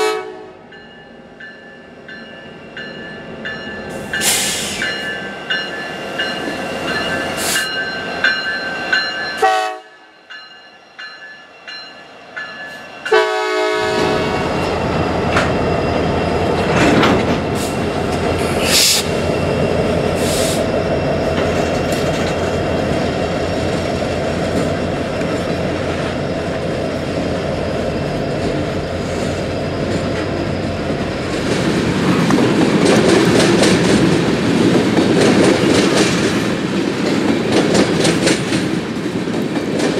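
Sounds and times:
train horn blast: 0.0s - 0.7s, 9.4s - 10.0s, 13.1s - 14.5s
diesel train engines running: 0.0s - 39.9s
train wheels clattering on rails: 1.5s - 9.5s, 12.4s - 39.9s.

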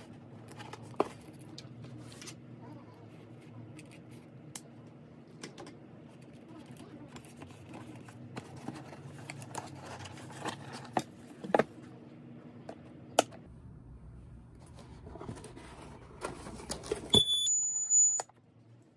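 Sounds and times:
high-pitched electronic alarm beep: 17.1s - 18.3s.

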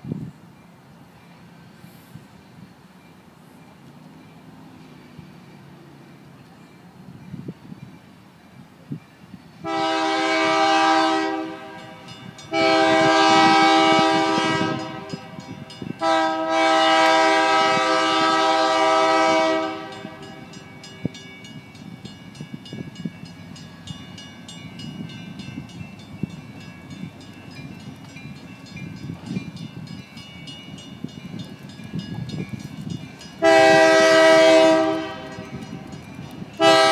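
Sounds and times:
locomotive air horn blasts: 9.6s - 20.6s, 33.4s - 35.9s, 36.6s - 36.9s.

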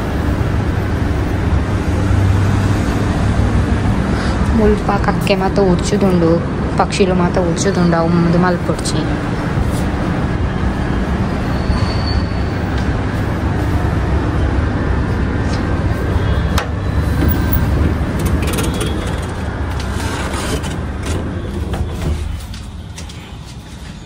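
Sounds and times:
air conditioner units humming: 0.0s - 11.7s, 12.3s - 24.0s
street traffic rumble: 0.0s - 24.0s.

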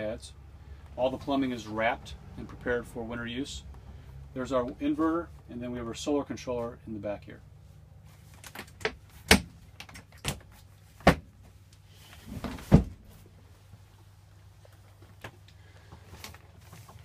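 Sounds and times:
couch bed knocks and clunks: 12.3s - 13.1s.

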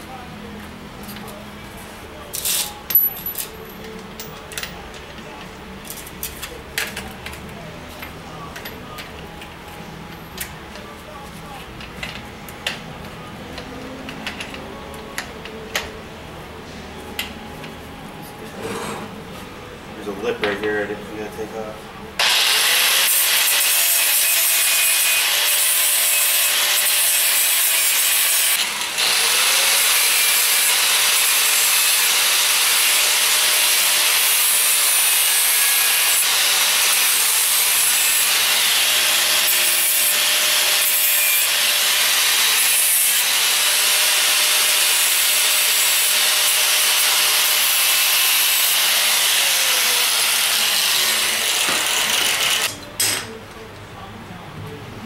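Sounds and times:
angle grinder grinding steel: 22.2s - 53.2s.

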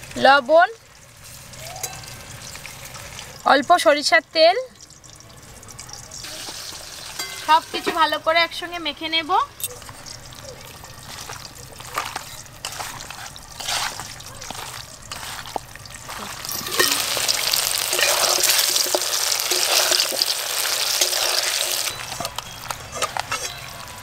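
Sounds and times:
potatoes sizzling in hot oil: 0.0s - 24.0s
wet squelches of kneading meat: 9.7s - 24.0s.

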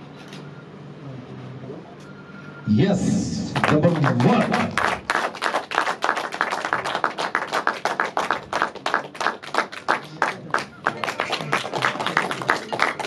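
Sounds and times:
people clapping: 3.4s - 13.0s.

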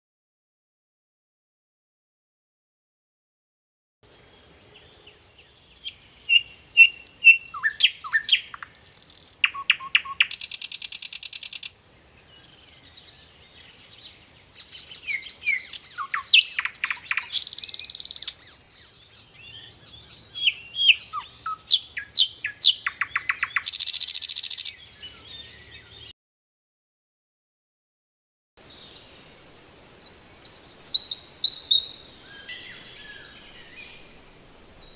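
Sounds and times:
nightingale singing: 4.0s - 26.1s, 28.6s - 34.9s.

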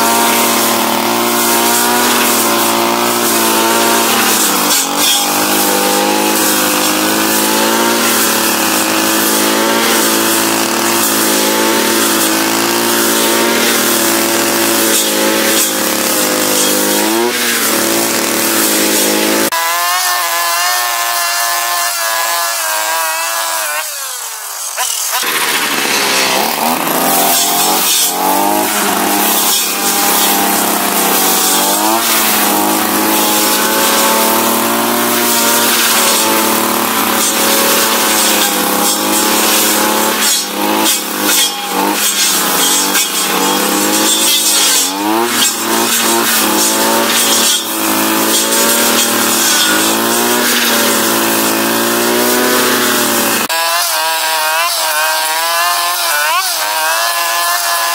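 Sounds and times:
brushcutter engine at high revs: 0.0s - 57.9s.

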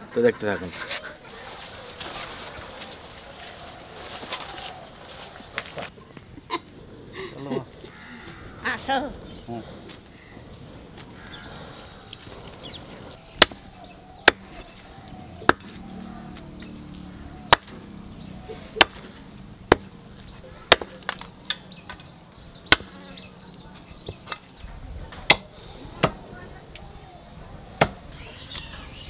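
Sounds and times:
cleaver chopping meat on wood: 13.4s - 14.5s, 17.5s - 17.8s, 20.7s - 21.2s, 22.7s - 23.0s.

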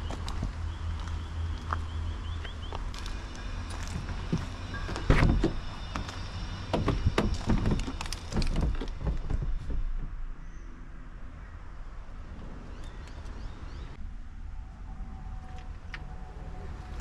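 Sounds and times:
car door knocks and rattles: 4.9s - 5.6s, 6.7s - 10.2s.

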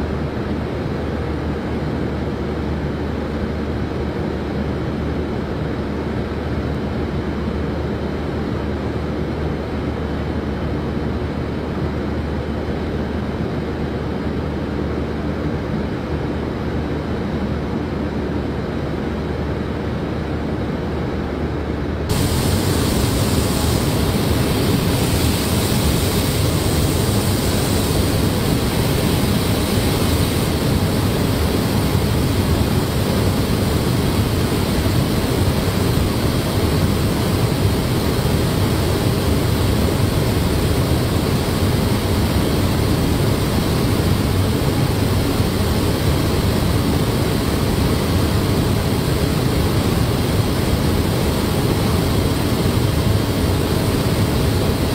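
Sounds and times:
ventilation air rushing: 0.0s - 54.9s
paint spray heads hissing: 22.1s - 31.5s.

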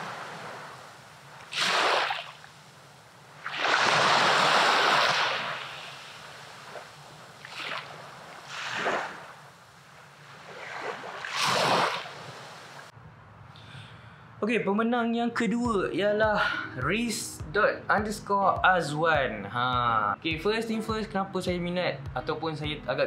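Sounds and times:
small waves washing on beach: 0.0s - 12.9s.

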